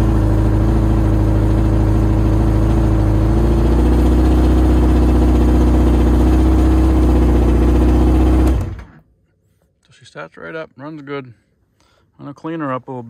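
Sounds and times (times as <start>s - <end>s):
snowmobile engine idling: 0.0s - 8.8s.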